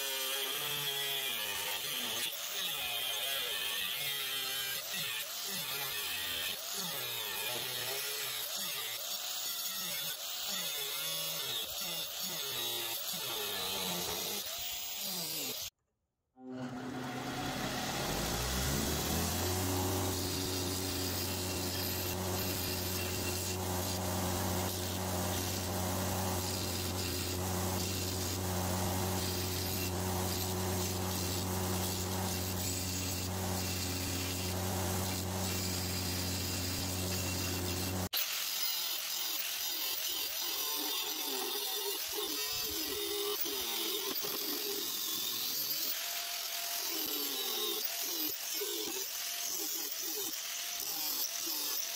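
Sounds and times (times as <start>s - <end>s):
angle grinder cutting steel: 0.0s - 15.8s, 16.4s - 51.9s
belt grinder motor running: 11.0s - 15.7s, 16.4s - 51.9s
steel grinding against belt: 16.4s - 51.9s.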